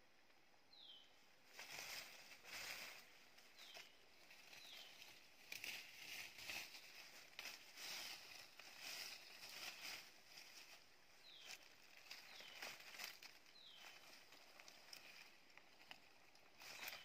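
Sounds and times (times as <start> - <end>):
bird chirps: 0.7 - 1.2, 3.5 - 5.2, 11.2 - 14.2
footsteps in dry leaves: 1.5 - 17.0.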